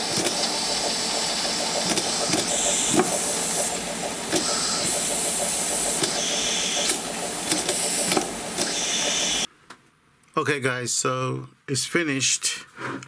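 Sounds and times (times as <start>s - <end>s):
air hissing from piston engine: 0.0s - 9.5s
engine clicks and knocks: 0.0s - 9.5s.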